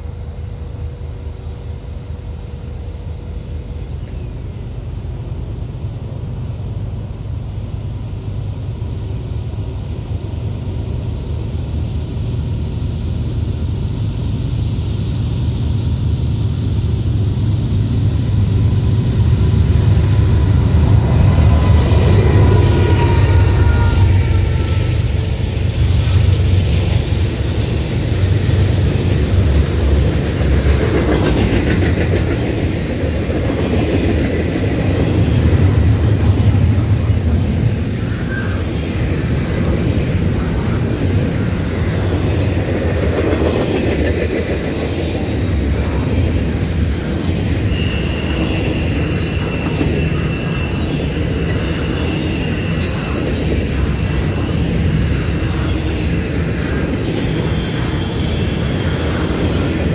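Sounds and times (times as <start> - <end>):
freight train wheels rumbling: 0.0 - 59.9
high wheel squeal: 20.8 - 26.2, 35.4 - 42.2, 45.1 - 59.9.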